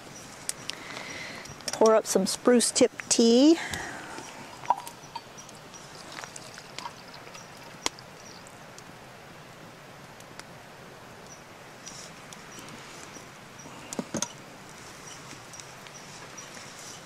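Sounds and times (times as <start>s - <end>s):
tea pouring into mug: 5.8s - 8.1s.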